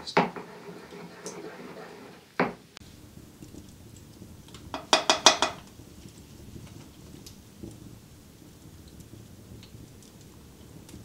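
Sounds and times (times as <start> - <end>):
spoon clinking against cookware: 4.8 - 5.6.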